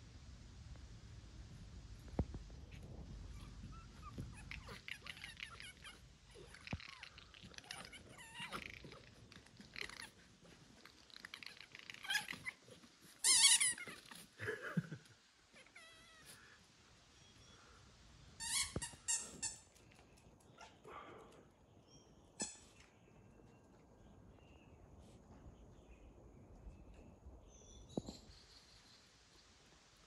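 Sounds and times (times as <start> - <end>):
animal calling: 3.4 - 14.9.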